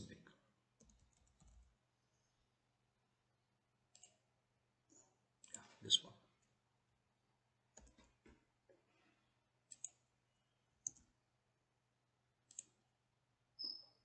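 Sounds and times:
computer mouse clicks: 3.9s - 4.3s, 7.7s - 8.1s, 9.7s - 10.1s, 10.8s - 11.1s, 12.4s - 12.8s.

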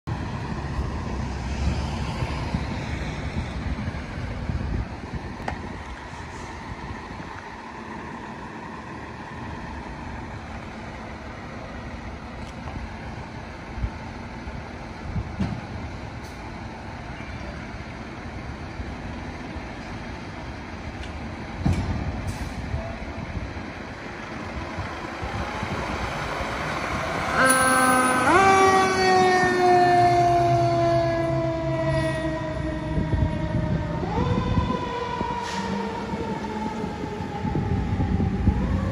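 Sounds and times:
fire engine air horn chord: 27.3s - 28.5s.

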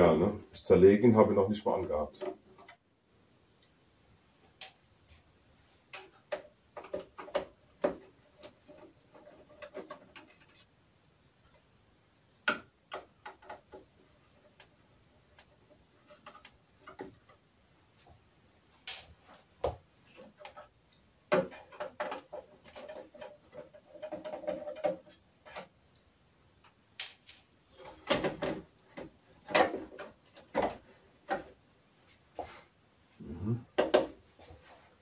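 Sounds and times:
clicks and knocks of plastic parts: 1.9s - 2.8s, 5.9s - 10.7s, 12.4s - 17.5s, 18.8s - 26.0s, 26.6s - 31.6s.

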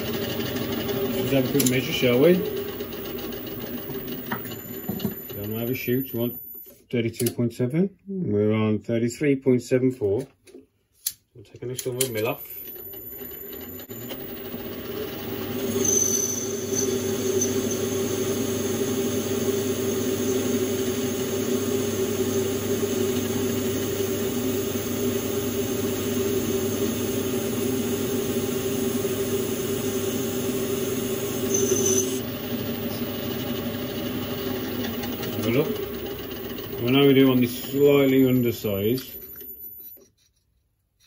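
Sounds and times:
metal lathe humming: 0.0s - 6.6s, 12.3s - 39.9s
high squeal of cutting tool: 15.4s - 20.5s, 31.4s - 32.2s.

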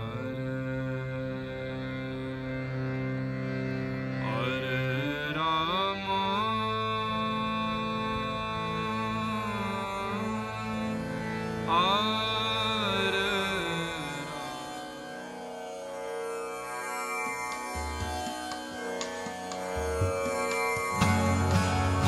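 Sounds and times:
harmonium drone chords: 0.0s - 22.0s
sliding melody: 16.7s - 22.0s.

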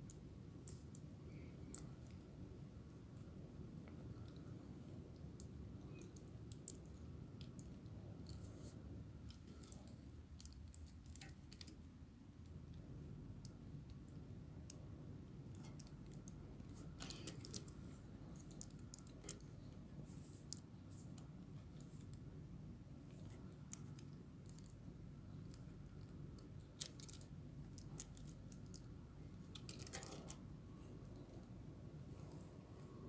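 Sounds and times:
low steady hum: 0.0s - 33.0s
plastic parts clicking: 15.5s - 19.6s, 25.5s - 30.4s.

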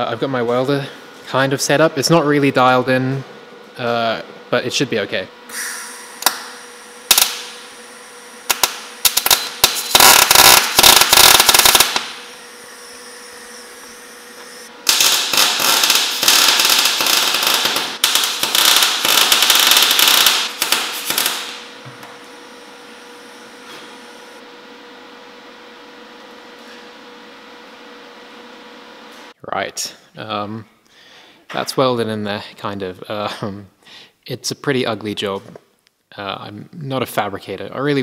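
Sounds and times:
welding arc crackling: 6.2s - 12.4s, 14.2s - 21.8s.

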